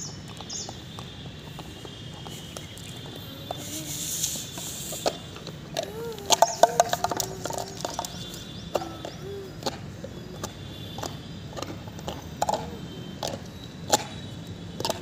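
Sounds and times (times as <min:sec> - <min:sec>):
dog chewing rubber toy: 0:04.5 - 0:14.2.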